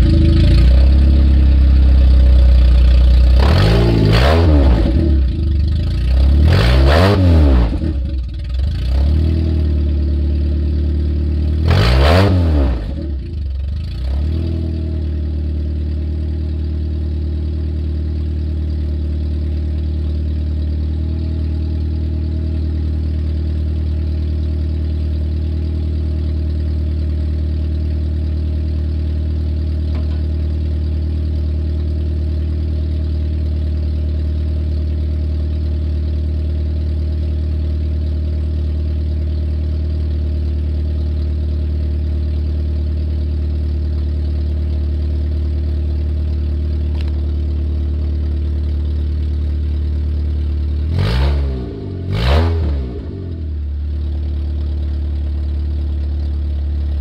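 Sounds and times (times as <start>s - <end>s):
car engine idling without exhaust: 0.0s - 6.5s, 7.5s - 11.7s, 12.6s - 52.2s, 52.8s - 57.0s.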